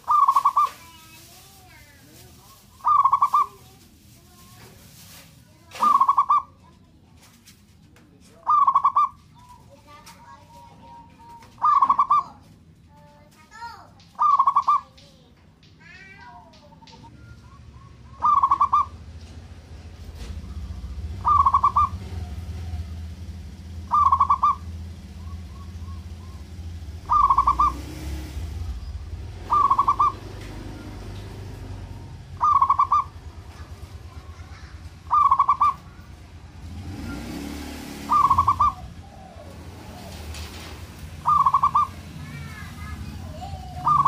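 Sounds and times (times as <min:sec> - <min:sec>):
dove cooing: 0:00.0 - 0:01.3, 0:02.5 - 0:03.7, 0:05.7 - 0:06.5, 0:08.4 - 0:12.3, 0:14.2 - 0:14.9, 0:16.7 - 0:19.0, 0:20.4 - 0:36.2, 0:37.0 - 0:44.0
low steady rumble: 0:00.0 - 0:44.0.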